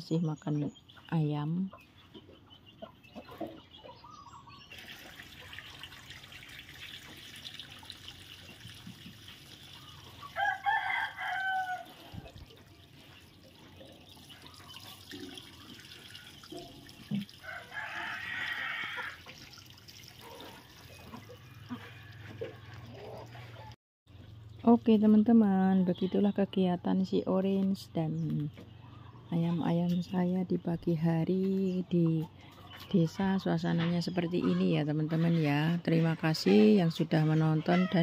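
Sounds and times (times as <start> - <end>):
trickle of running water: 4.7 - 23.5
rooster crowing: 10.4 - 12.1, 17.4 - 19.2.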